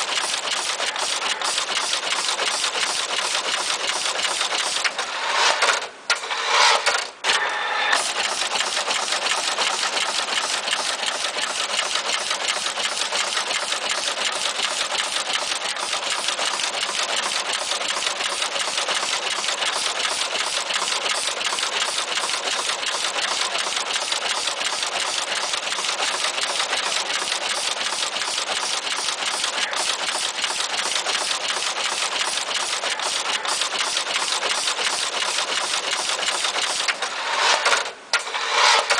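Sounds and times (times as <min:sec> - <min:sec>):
insertion head rattling fast: 0:08.0 - 0:38.9.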